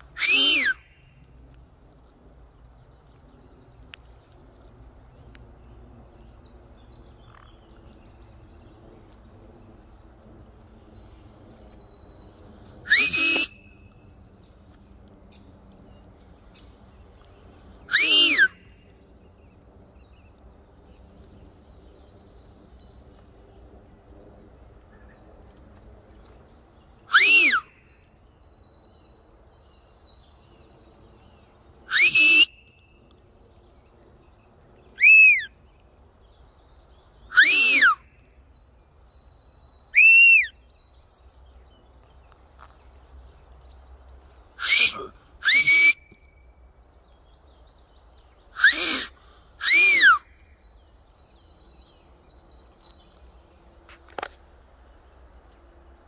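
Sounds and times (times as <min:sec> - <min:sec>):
loud whistled call: 0:00.1 - 0:00.9, 0:12.8 - 0:13.8, 0:17.9 - 0:18.6, 0:27.1 - 0:27.8, 0:31.9 - 0:32.7, 0:35.0 - 0:35.5, 0:37.3 - 0:38.0, 0:40.0 - 0:40.6, 0:44.6 - 0:46.4, 0:48.6 - 0:50.3.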